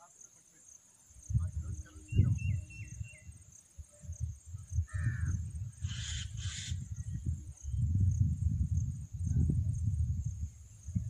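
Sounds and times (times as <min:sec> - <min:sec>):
insects droning: 0:00.0 - 0:11.0
wind buffeting microphone: 0:01.2 - 0:11.0
bird harsh calls: 0:04.9 - 0:07.1.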